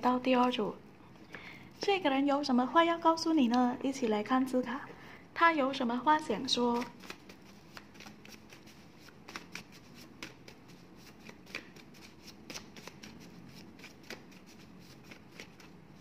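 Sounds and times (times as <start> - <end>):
cards being shuffled: 6.6 - 16.0.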